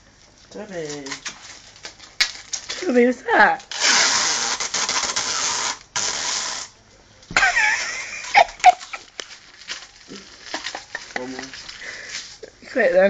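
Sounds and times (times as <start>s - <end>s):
tape pulled off roll: 3.6s - 11.0s.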